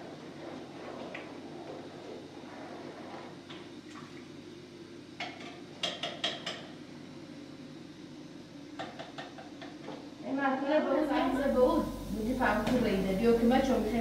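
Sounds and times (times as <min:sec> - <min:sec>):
steady low hum: 0:09.5 - 0:14.0.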